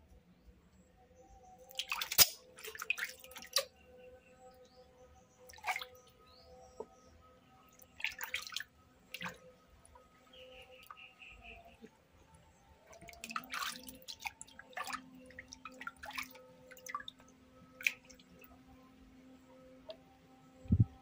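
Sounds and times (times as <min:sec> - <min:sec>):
water splashing in a basin: 0:01.6 - 0:03.7, 0:05.4 - 0:06.1, 0:07.7 - 0:10.1, 0:12.8 - 0:18.5.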